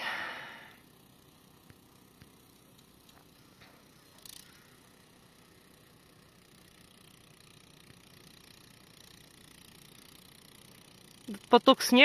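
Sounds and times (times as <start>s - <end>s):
faint ticks: 1.6s - 4.9s.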